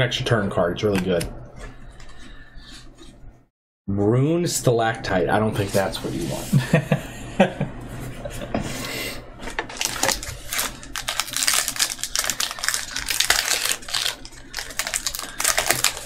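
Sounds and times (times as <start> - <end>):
cards and packaging crackling: 9.7 - 16.0.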